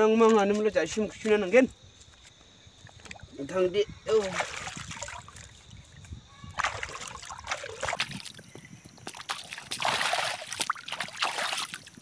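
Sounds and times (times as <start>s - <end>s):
hands splashing in water: 4.2s - 5.6s, 6.5s - 8.4s, 9.0s - 12.0s.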